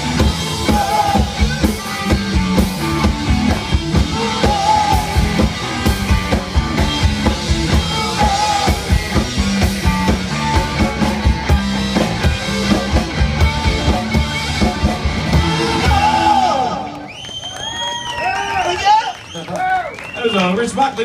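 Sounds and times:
drum kit beat: 0.0 - 16.8
rock band playing: 0.0 - 17.4.

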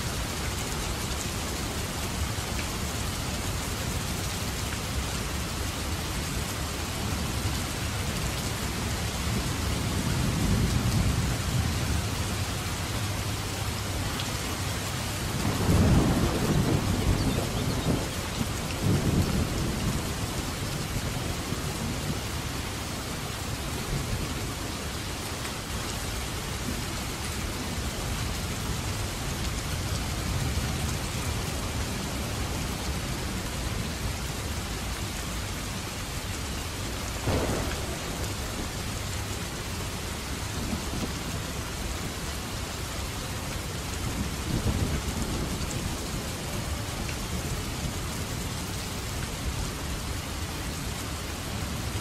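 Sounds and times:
heavy rain hissing: 0.0 - 52.0
rolling thunder: 15.4 - 20.4, 37.2 - 39.4.

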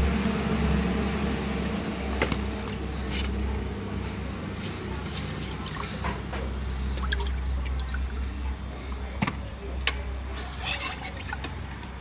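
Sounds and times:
steady low hum: 0.0 - 10.3
water sloshing in metal pot: 2.2 - 9.4, 10.0 - 12.0
water drips: 2.4 - 9.1.

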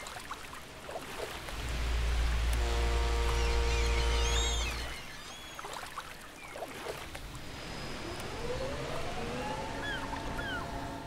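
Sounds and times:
small waves lapping on sand: 0.0 - 11.0
bird chirps: 9.8 - 10.8.

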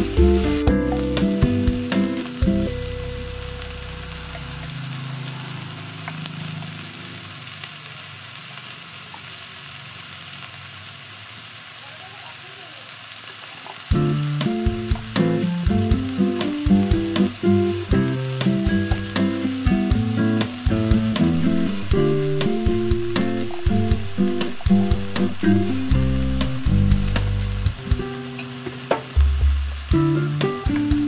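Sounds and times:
background music: 0.0 - 4.6, 13.9 - 31.0
chicken sizzling in oil: 0.0 - 31.0.

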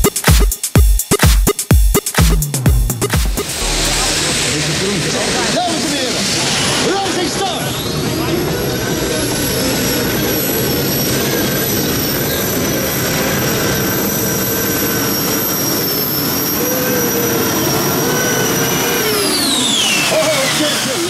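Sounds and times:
high whine: 0.0 - 6.9.

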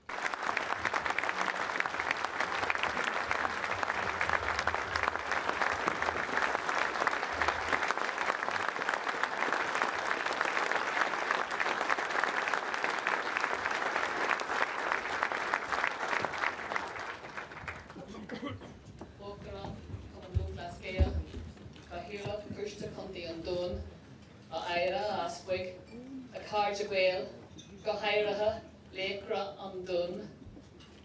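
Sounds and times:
audience applauding: 0.0 - 18.2.

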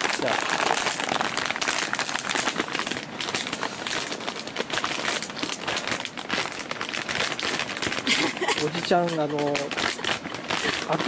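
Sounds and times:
plastic chip bag crinkling: 0.0 - 11.0.

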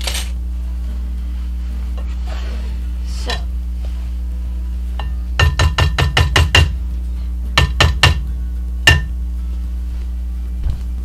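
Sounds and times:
wooden spoon tapping glass bowl: 5.0 - 6.7, 7.6 - 8.2.

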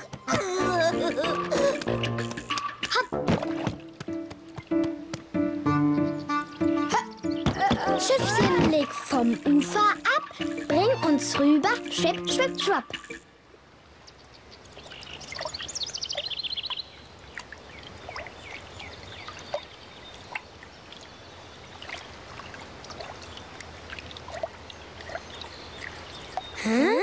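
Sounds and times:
water drips and plinks: 1.5 - 4.9, 8.0 - 27.0
soft water trickle: 12.5 - 27.0.

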